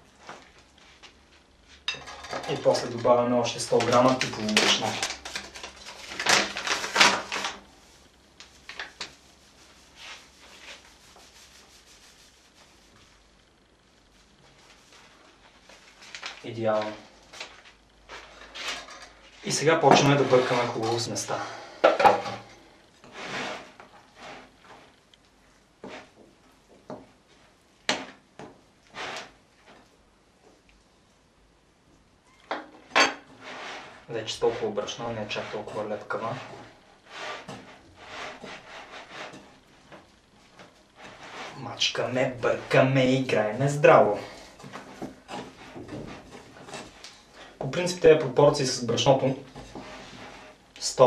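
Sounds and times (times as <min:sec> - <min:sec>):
flour scraping in a bowl: 0:07.7 - 0:13.3, 0:18.2 - 0:21.4, 0:23.0 - 0:24.9, 0:28.8 - 0:29.8, 0:33.3 - 0:39.8, 0:40.9 - 0:51.0.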